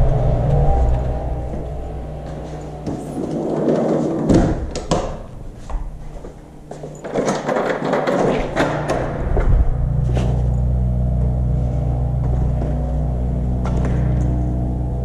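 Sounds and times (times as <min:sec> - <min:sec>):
door opening and shutting: 0:00.0 - 0:06.0, 0:06.9 - 0:10.6.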